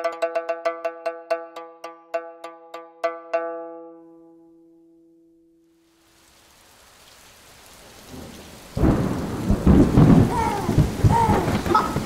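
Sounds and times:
rain hiss: 0:05.8 - 0:12.0
thunder crack and rumble: 0:08.1 - 0:12.0.

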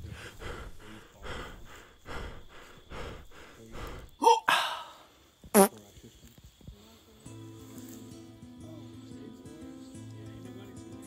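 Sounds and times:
heavy breathing: 0:00.0 - 0:05.4.

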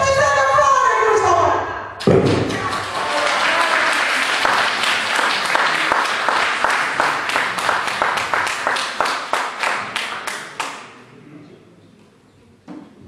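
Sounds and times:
audience rhythmic clapping: 0:02.0 - 0:11.1.

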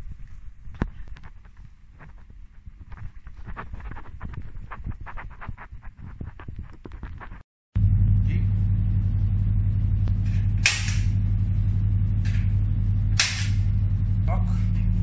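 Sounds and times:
steady low hum: 0:00.0 - 0:15.0
gas cooker igniter snapping: 0:10.3 - 0:11.2, 0:13.1 - 0:13.7.

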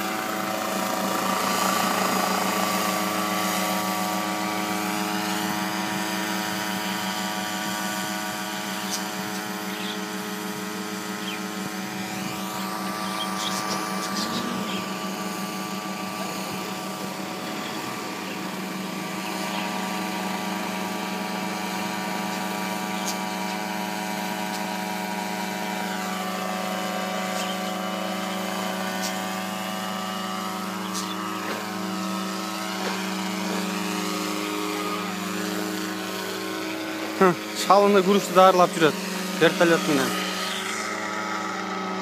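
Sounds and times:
remote-controlled helicopter droning: 0:00.0 - 0:42.0.

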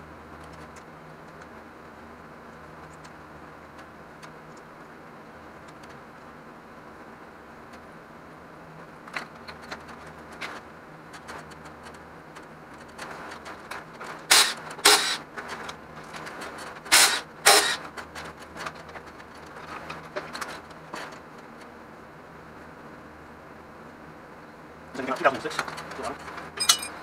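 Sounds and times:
cordless power tool spinning bolts: 0:14.2 - 0:15.2, 0:16.9 - 0:17.8
tools and parts clinking: 0:25.6 - 0:27.0.

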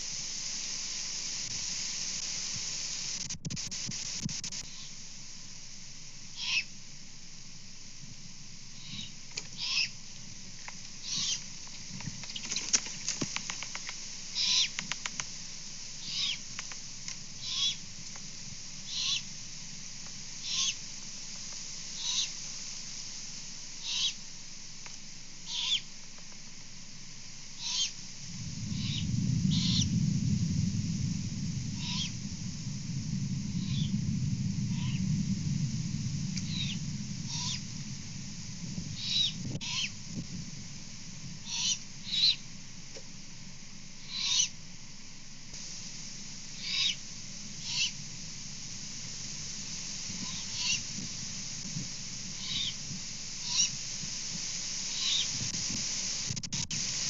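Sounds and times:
owls giving raspy screeches: 0:06.4 - 0:06.7, 0:08.8 - 0:09.9, 0:11.0 - 0:11.4, 0:14.4 - 0:14.8, 0:20.4 - 0:20.8, 0:22.0 - 0:22.3, 0:23.8 - 0:24.2, 0:25.5 - 0:25.8, 0:27.6 - 0:28.0, 0:31.8 - 0:32.2, 0:36.4 - 0:37.6, 0:39.0 - 0:39.9, 0:41.4 - 0:42.4, 0:44.0 - 0:44.5, 0:46.6 - 0:47.0, 0:47.6 - 0:47.9, 0:50.2 - 0:50.8, 0:52.4 - 0:52.8, 0:53.4 - 0:53.7
distant thunder rumbling: 0:27.6 - 0:42.8, 0:45.6 - 0:55.7.

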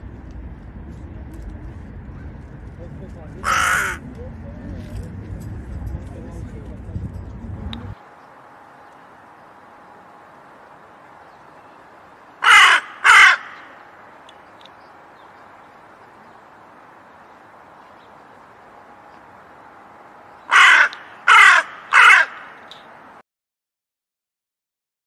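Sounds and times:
faint steady background noise: 0:00.0 - 0:23.2
crow cawing: 0:03.4 - 0:04.0, 0:12.4 - 0:14.0, 0:20.4 - 0:22.9.

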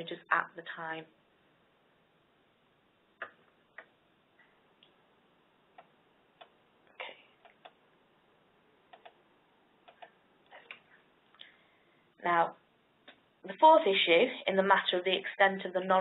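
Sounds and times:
faint clicks and taps: 0:03.2 - 0:05.0, 0:08.9 - 0:09.2.

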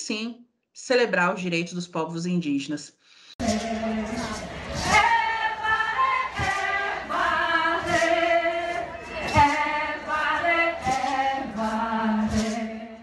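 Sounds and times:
short percussive strokes: 0:03.4 - 0:13.0.

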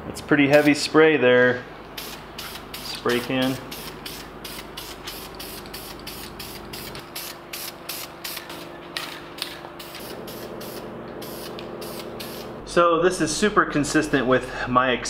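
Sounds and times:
aerosol spray can hissing: 0:02.0 - 0:08.6, 0:09.8 - 0:12.6.

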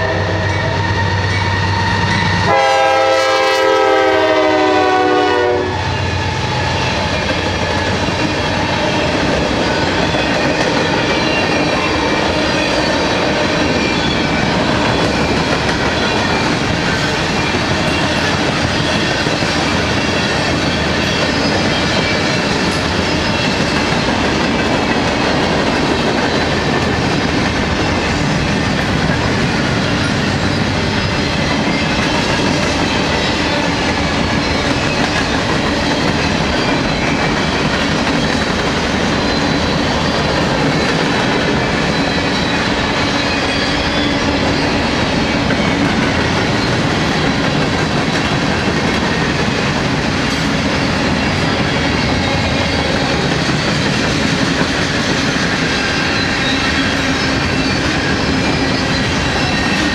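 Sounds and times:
freight train rolling past: 0:00.0 - 0:59.9
steel wheels clattering on rails: 0:05.8 - 0:59.9.

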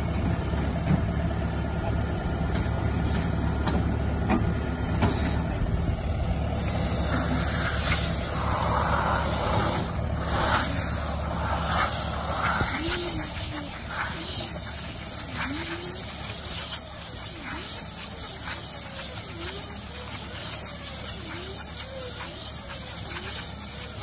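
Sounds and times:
tractor engine running: 0:00.0 - 0:24.0
faint rising and falling whine: 0:04.5 - 0:15.6
steady high hiss: 0:06.6 - 0:24.0.

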